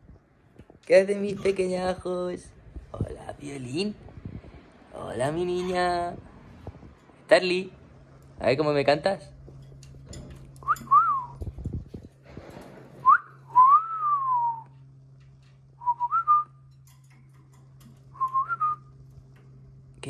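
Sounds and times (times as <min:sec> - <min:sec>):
whistled notes: 0:10.6 - 0:11.4, 0:13.0 - 0:14.8, 0:15.8 - 0:16.6, 0:18.2 - 0:18.9.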